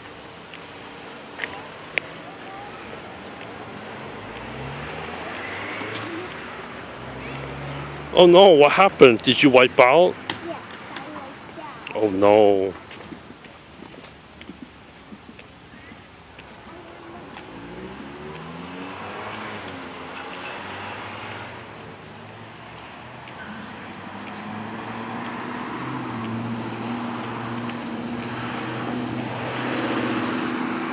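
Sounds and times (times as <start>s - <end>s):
cars passing on road: 0.0s - 30.9s.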